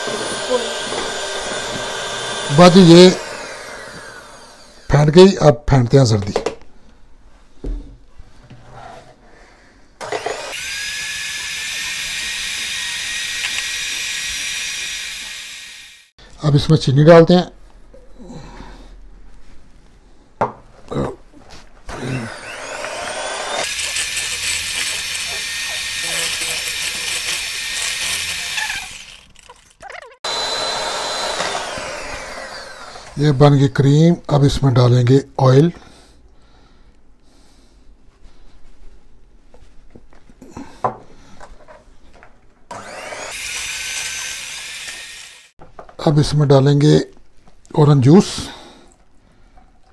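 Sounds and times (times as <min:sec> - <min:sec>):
electric hand mixer whining: 0:00.0 - 0:05.0, 0:10.0 - 0:16.1, 0:21.9 - 0:33.2, 0:42.7 - 0:45.6.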